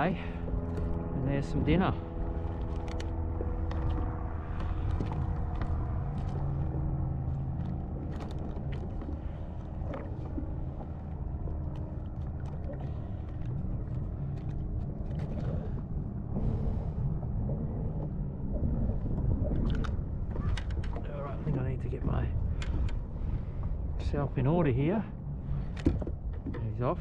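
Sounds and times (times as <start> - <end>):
low engine drone: 0.0 - 27.0
fishing gear clicking and rattling: 0.4 - 1.2, 2.1 - 15.9, 19.5 - 21.5, 22.4 - 23.2.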